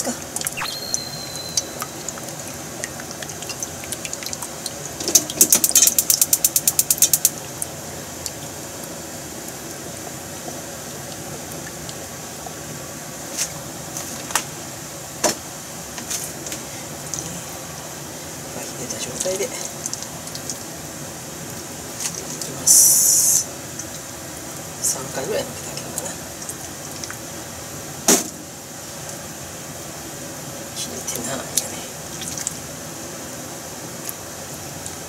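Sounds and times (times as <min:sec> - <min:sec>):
steady hiss: 0:00.0 - 0:35.0.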